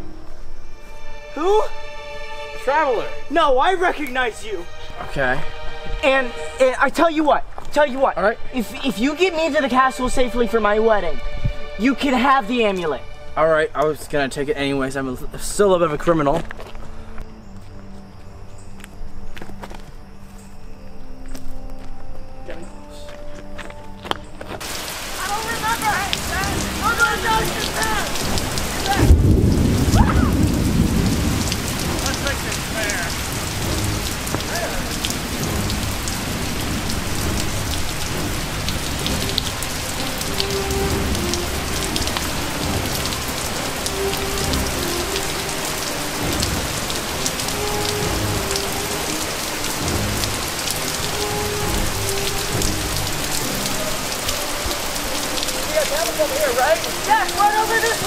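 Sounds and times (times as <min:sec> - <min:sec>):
steady rain falling: 0:22.7 - 0:58.0
thunder rumble: 0:24.6 - 0:55.0.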